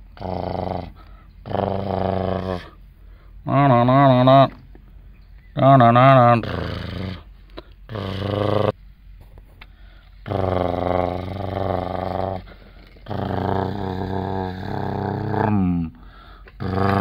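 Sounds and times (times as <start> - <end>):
man imitating truck engine: 0.0 - 2.8, 3.4 - 4.6, 5.6 - 7.3, 7.9 - 8.8, 10.2 - 17.0.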